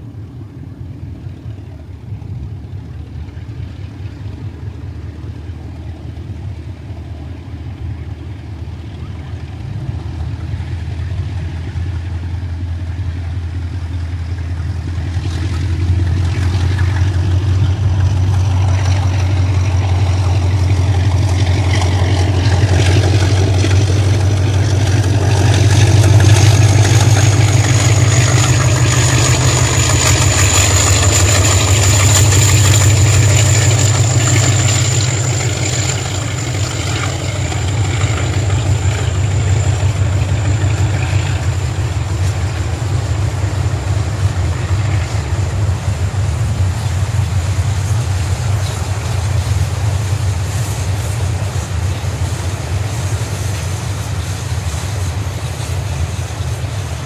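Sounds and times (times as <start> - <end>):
diesel locomotive engine drone: 0.0 - 57.0
steady high whine: 0.0 - 57.0
freight wagon wheel clatter: 13.2 - 57.0.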